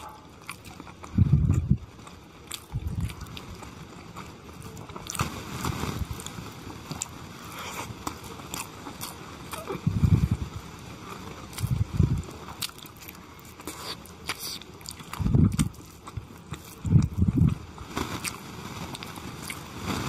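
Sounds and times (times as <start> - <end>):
chewing and wet mouth sounds: 0.0 - 20.0.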